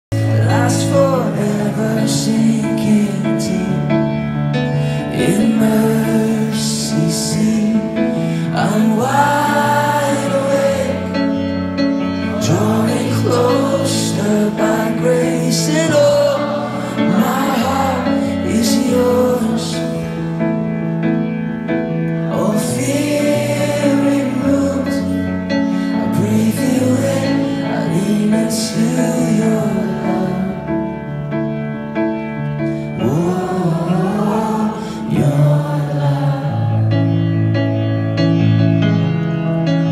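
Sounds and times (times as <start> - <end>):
person singing: 4.9 - 20.3, 33.0 - 37.0.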